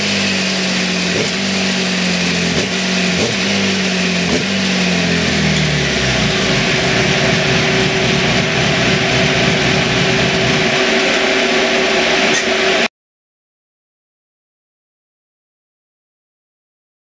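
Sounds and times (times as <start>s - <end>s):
motorcycle engine running hard: 0.0s - 12.9s
rear wheel spinning roller: 0.0s - 12.9s.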